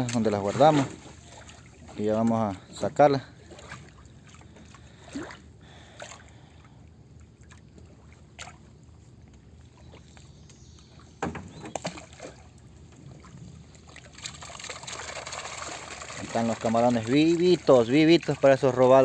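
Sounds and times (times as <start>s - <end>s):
water splashing: 0.0s - 10.3s, 10.9s - 19.0s
water lapping against a canoe: 0.0s - 19.0s
knocks on canoe: 11.2s - 12.0s.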